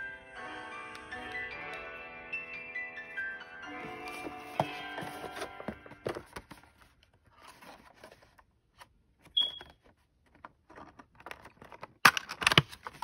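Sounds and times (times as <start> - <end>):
plastic packaging rustling: 3.8 - 8.4.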